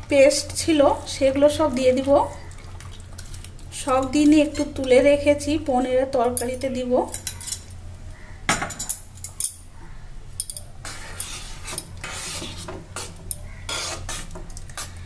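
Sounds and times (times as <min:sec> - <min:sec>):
metal spoon stirring in a pot: 0:10.4 - 0:15.0.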